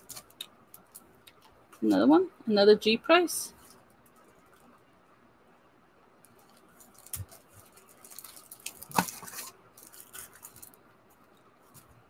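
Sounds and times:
plastic crinkling and tapping: 6.2 - 12.0.

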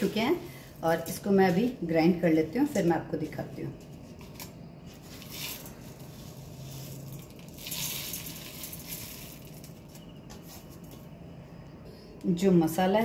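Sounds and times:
dry spices pattering into grinder jar: 5.0 - 10.2.

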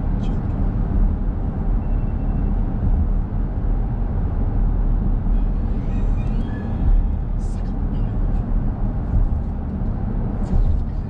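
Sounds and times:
car road and engine rumble: 0.0 - 11.0.

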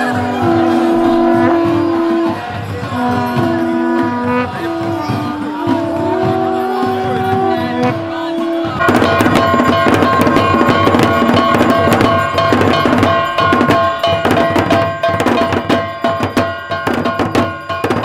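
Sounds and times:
held pitched tones: 0.0 - 13.3
steady ringing tone: 0.0 - 15.2
barrel drums beaten fast: 0.0 - 18.0.

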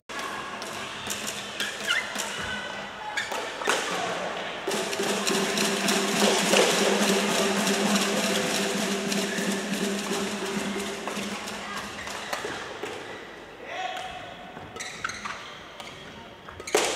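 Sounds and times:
sports hall din: 0.1 - 16.9
rackets hitting shuttlecock: 3.2 - 7.4, 14.0 - 16.9.

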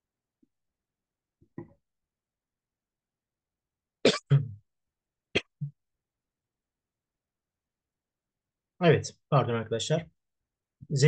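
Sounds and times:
man coughing: 4.1 - 4.6.

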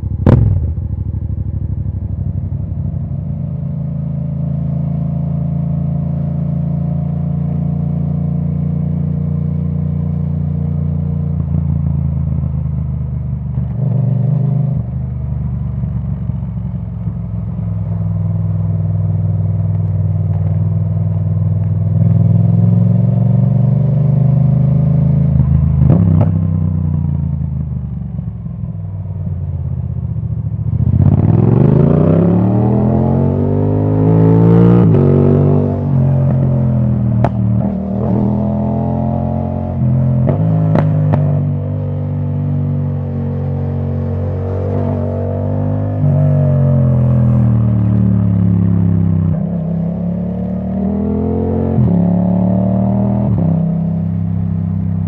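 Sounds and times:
motorcycle engine running: 0.0 - 6.8.

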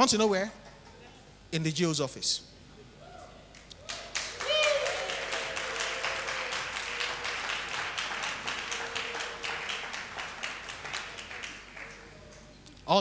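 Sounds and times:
congregation applauding: 3.8 - 12.5.

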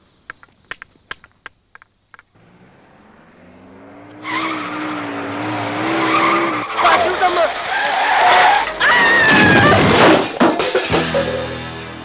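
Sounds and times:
tyres squealing: 2.2 - 10.4
car engine approaching: 2.3 - 8.8.

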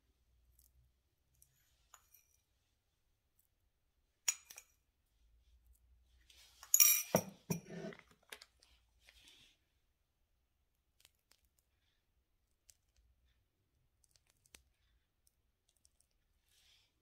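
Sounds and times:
metallic tool clinks: 6.6 - 7.6.

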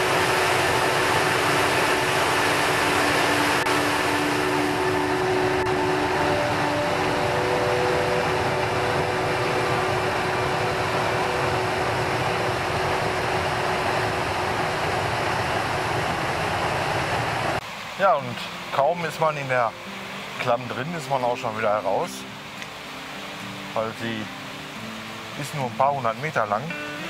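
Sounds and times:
stream rushing over rocks: 0.0 - 27.0.

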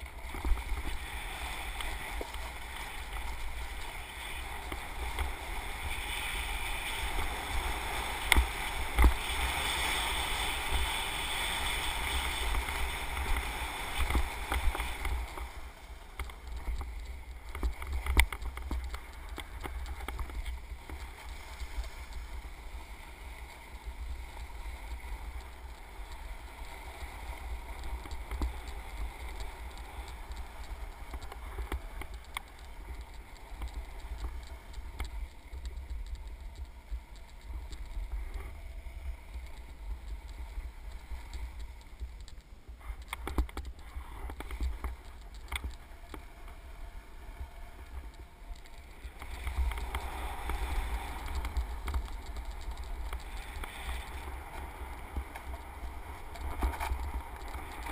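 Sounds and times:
small knocks and clicks: 16.1 - 21.4, 27.8 - 38.6, 39.2 - 46.6.

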